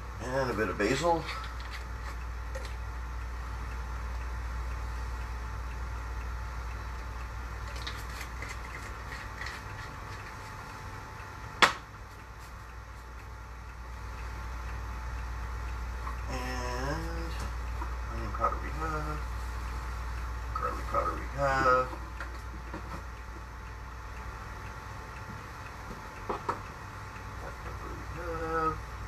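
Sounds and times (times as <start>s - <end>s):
low mechanical hum: 0.0s - 29.0s.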